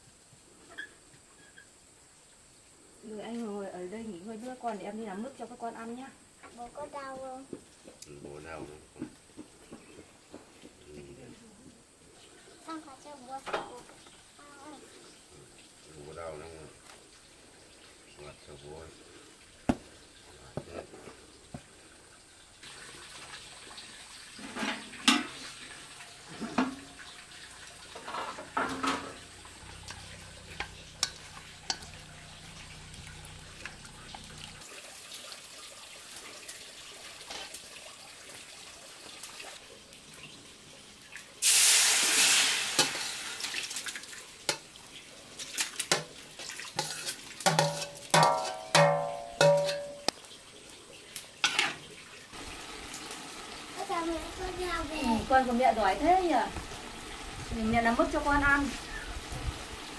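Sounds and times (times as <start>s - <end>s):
pots and utensils clinking: 24.3s - 32.2s, 45.4s - 50.2s, 51.4s - 51.9s.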